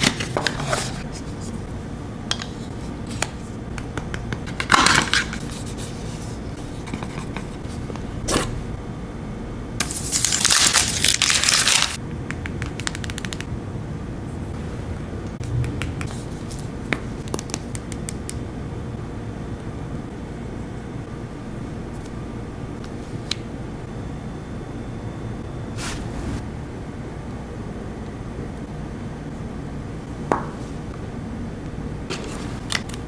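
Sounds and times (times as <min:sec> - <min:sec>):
plastic wrap crinkling: 0:09.9 - 0:12.0.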